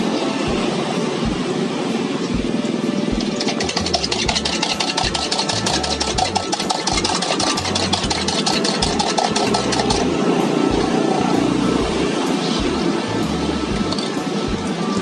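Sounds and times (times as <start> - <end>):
gas burner roaring: 0.0 - 15.0
spoon beating eggs in cup: 3.3 - 10.1.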